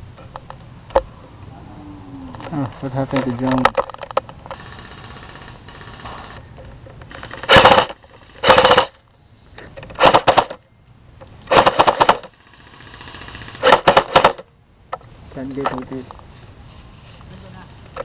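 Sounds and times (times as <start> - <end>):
airsoft rifle full-auto bursts: 4.6 - 6.4, 7.2 - 9.0, 10.0 - 10.6, 11.5 - 14.4.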